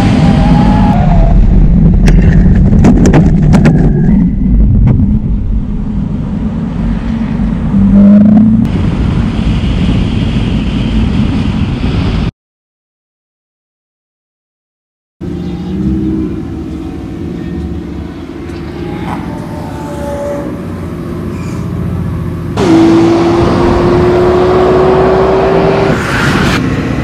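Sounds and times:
race car engine: 15.2 - 27.0.

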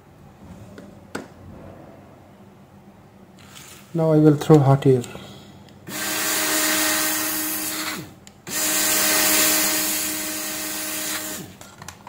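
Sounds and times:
hot air rework pencil hissing: 5.9 - 11.6.

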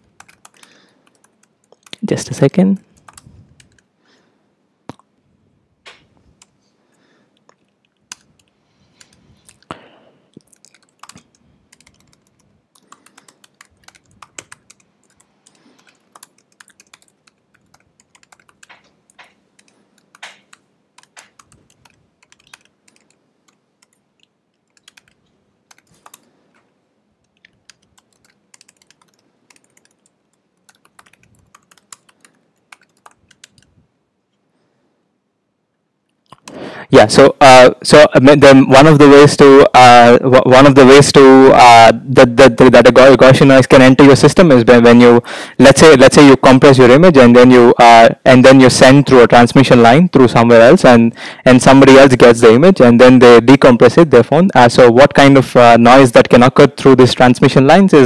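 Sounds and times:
typing on computer keyboard: 0.1 - 2.1, 2.9 - 3.9, 10.4 - 24.0, 24.6 - 26.3, 27.3 - 33.7.

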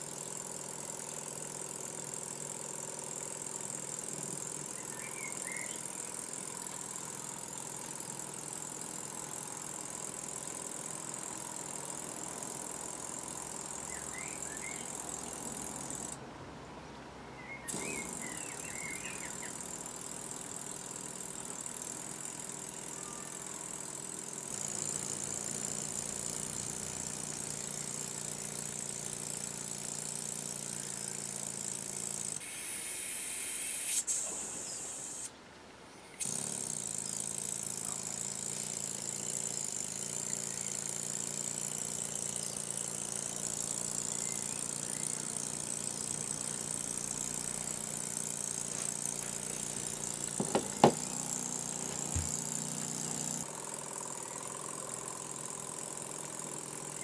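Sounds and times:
model engine buzzing hum: 0.0 - 35.3, 36.0 - 57.0
high exhaust hiss: 32.4 - 35.4, 48.2 - 53.0.

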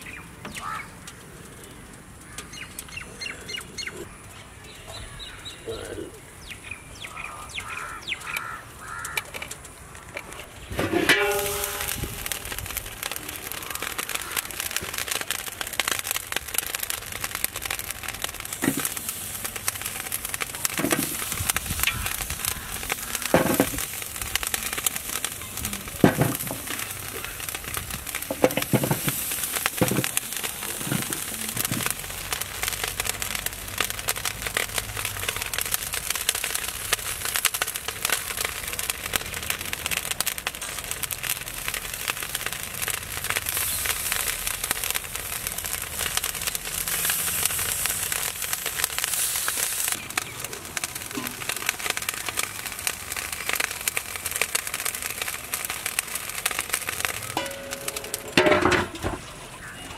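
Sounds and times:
wood fire crackling and popping: 0.0 - 59.9
vegetables knocking into pot: 20.6 - 22.1, 22.9 - 24.0, 26.0 - 27.1, 27.9 - 31.9, 57.3 - 59.3.

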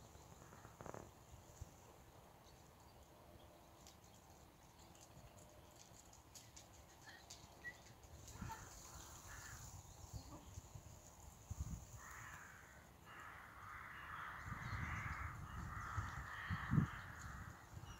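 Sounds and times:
crows cawing: 8.4 - 9.6, 12.0 - 17.7.

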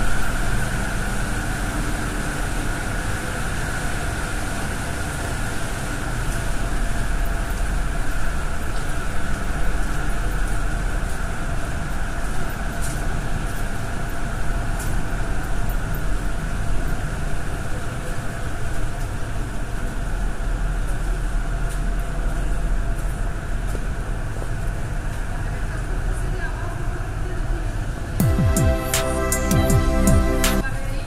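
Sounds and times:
low machinery hum: 0.0 - 31.0
steady held tones: 28.2 - 30.6.

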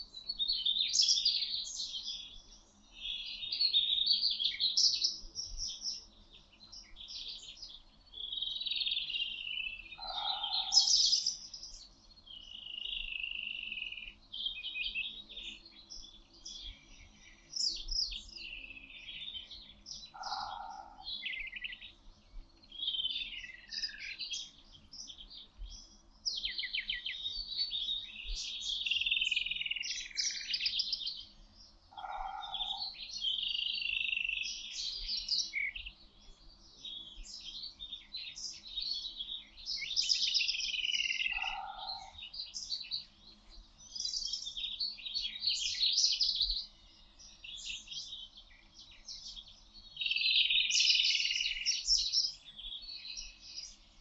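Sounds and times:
birds chirping and trilling: 0.0 - 54.0.

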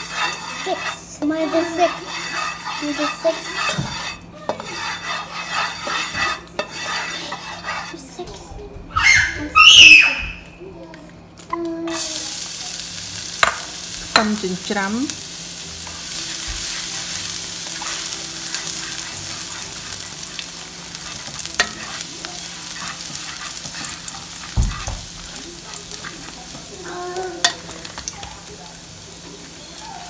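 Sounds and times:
oil sizzling in a hot pan: 0.0 - 7.9, 11.9 - 30.0
spatula scraping a pan: 0.0 - 8.5, 15.8 - 30.0.

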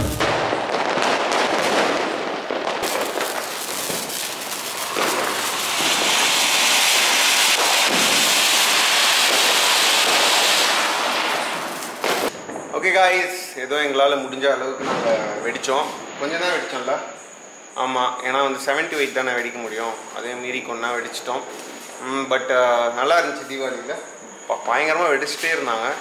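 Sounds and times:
fireworks crackling: 0.0 - 13.5, 24.7 - 26.0
fountain firework spraying hiss: 2.7 - 12.3.

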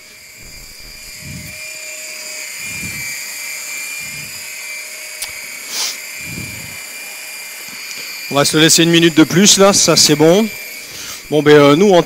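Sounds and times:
soft low throb: 0.0 - 4.7, 6.1 - 6.9
food processor motor whirring: 0.0 - 12.0.

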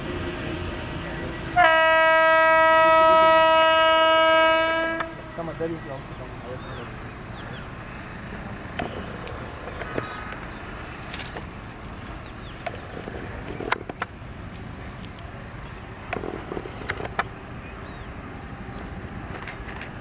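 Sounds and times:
distant freight train rumble: 0.0 - 20.0.

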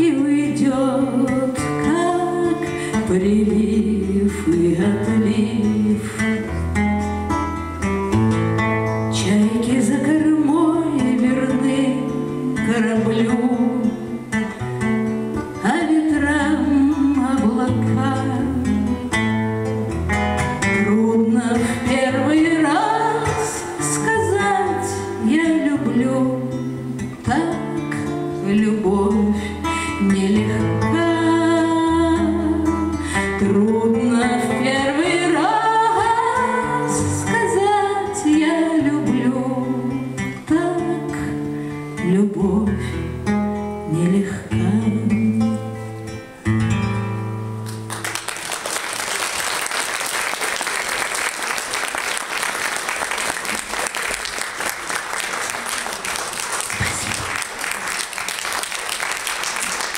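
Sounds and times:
woman singing: 0.0 - 6.6, 9.1 - 14.5, 15.6 - 19.2, 20.6 - 41.4, 42.0 - 43.0, 43.8 - 45.9
acoustic guitar: 0.0 - 59.9
audience applause: 47.9 - 59.9.

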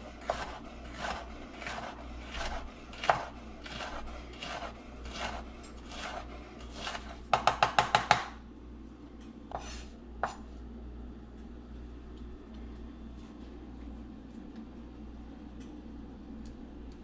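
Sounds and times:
knife chopping on cutting board: 0.0 - 8.3.

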